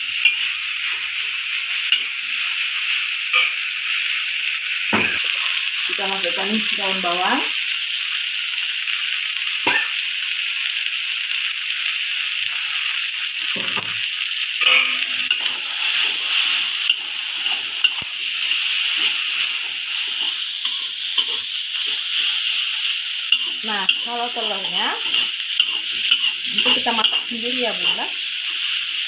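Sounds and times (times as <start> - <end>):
food sizzling in a wok: 0.0 - 29.0
metal spatula scraping pan: 14.6 - 22.3, 23.3 - 28.1.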